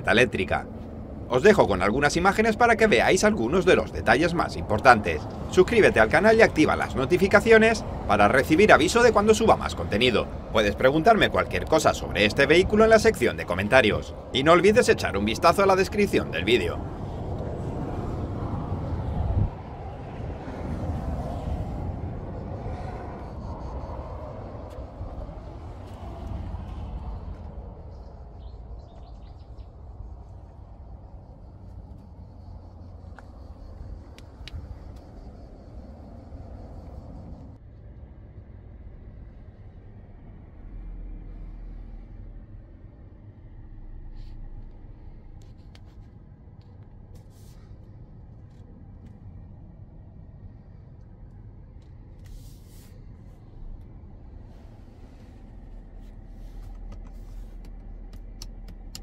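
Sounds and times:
low rumble on microphone: 16.2s - 58.0s
faint bird chirps: 27.8s - 30.4s.

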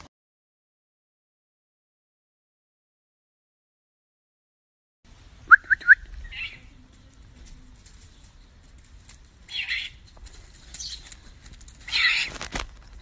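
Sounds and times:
owl rising chirps: 5.5s - 6.7s.

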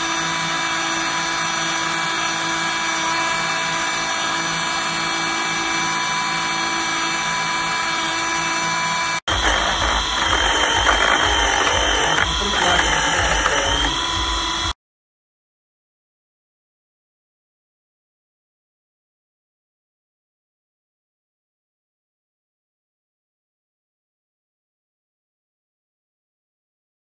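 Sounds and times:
lathe cutting workpiece: 0.0s - 14.8s
small motor whining: 0.0s - 14.8s.

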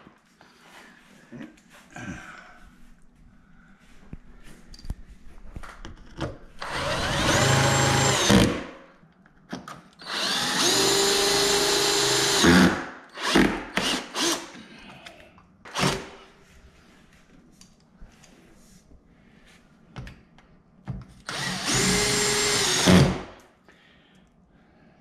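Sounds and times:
cordless drill whine: 6.6s - 8.5s, 10.0s - 12.6s, 21.3s - 23.1s.

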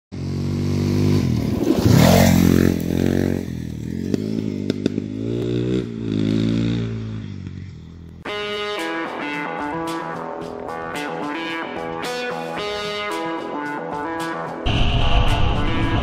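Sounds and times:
dirt bike passing and accelerating: 0.1s - 8.4s.

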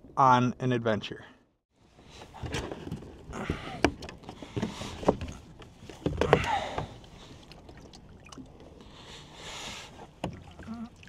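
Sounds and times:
gear knocking against kayak: 2.4s - 7.0s.

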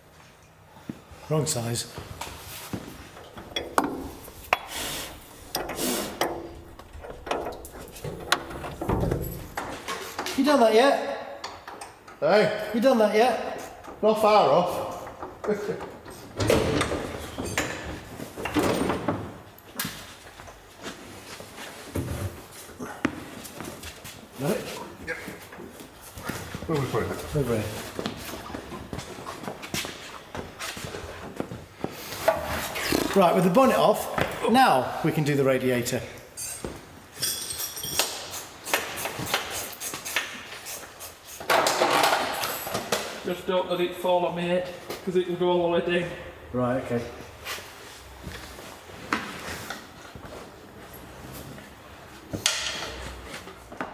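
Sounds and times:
metal panel knocking and clanking: 5.4s - 9.9s.

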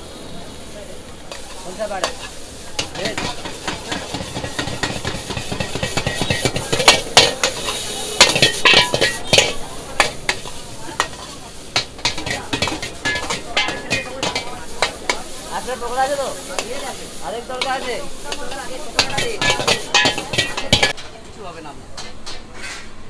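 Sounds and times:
food sizzling: 0.0s - 21.0s
steel ladle clanging on wok: 1.3s - 15.6s, 17.5s - 21.1s.

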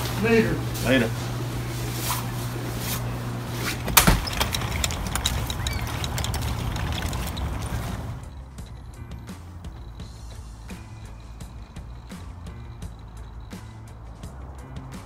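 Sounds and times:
low hum: 0.0s - 15.0s
steady background noise: 0.0s - 15.0s
door banging shut: 3.8s - 8.8s.

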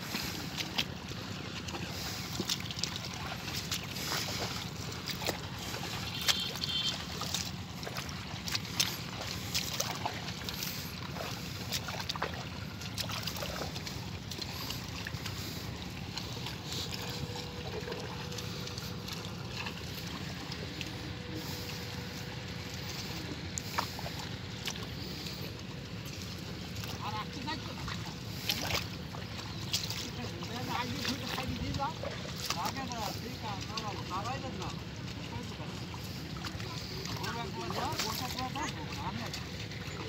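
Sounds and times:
mud squelching and sloshing: 0.0s - 40.0s
short splashes: 0.0s - 40.0s.

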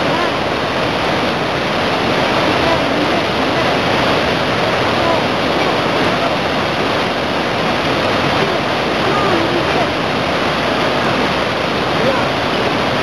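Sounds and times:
whitewater roaring: 0.0s - 13.0s.

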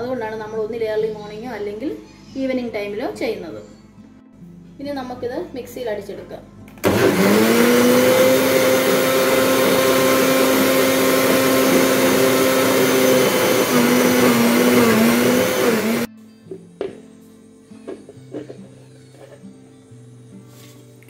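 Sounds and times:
mixer grinder motor whine: 6.8s - 16.1s.

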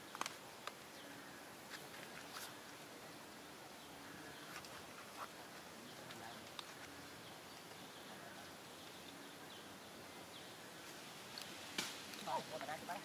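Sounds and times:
background hiss: 0.0s - 13.0s.

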